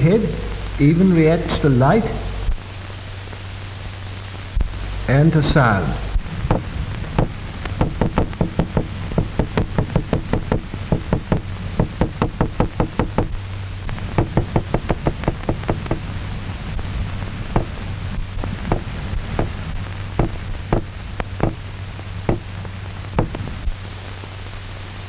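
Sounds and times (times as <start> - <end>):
low soundtrack hum: 0.0 - 25.0
sharp knocks on hard surface: 7.8 - 13.3, 14.2 - 16.0, 18.7 - 19.5, 20.2 - 21.6.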